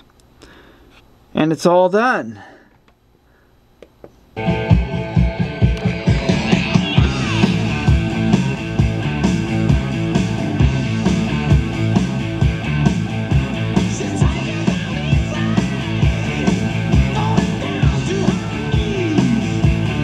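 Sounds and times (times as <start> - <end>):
rock music through loudspeakers: 4.4 - 20.0.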